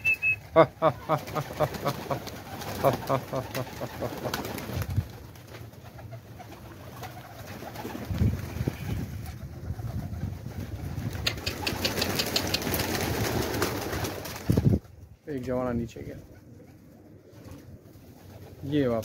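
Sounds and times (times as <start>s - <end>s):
pigeon wings flapping: 0.2s - 15.0s
sharp wing claps: 11.1s - 14.5s.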